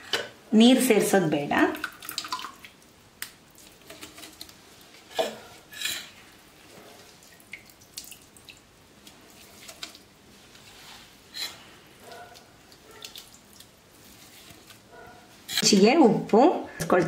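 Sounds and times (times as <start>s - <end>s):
water dripping and splashing: 1.5s - 4.6s, 6.8s - 10.2s, 12.0s - 14.8s.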